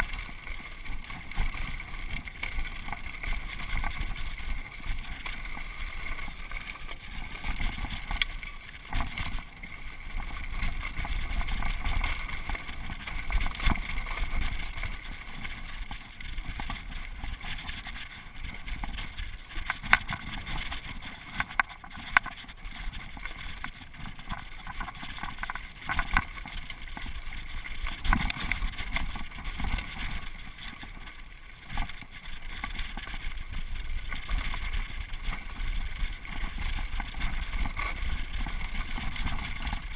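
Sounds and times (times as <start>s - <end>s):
bike knocking and rattling on rocks: 0.0s - 39.9s
bike tyres rolling on dirt trail: 0.0s - 39.9s.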